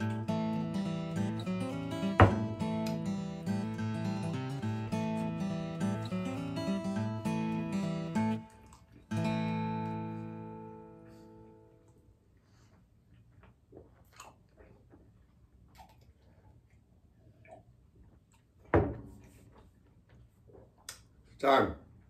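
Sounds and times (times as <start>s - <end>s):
acoustic guitar chord ringing: 0.0s - 8.5s, 9.1s - 11.7s
glass knocking on table: 2.2s - 2.5s
swallowing and mouth sounds: 13.1s - 18.7s.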